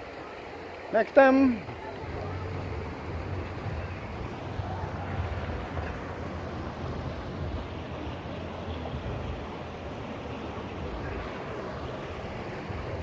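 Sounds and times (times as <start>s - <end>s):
wind buffeting microphone: 1.6s - 13.0s.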